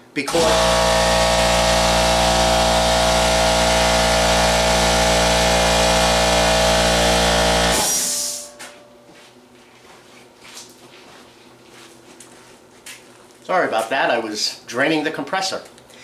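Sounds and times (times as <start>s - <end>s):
air compressor running: 0.0s - 8.8s
sharp hiss of released air: 7.8s - 8.6s.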